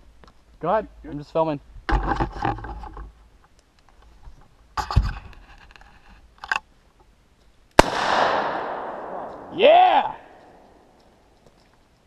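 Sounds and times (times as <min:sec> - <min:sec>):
rifle handling scraping: 0:03.9 - 0:06.7.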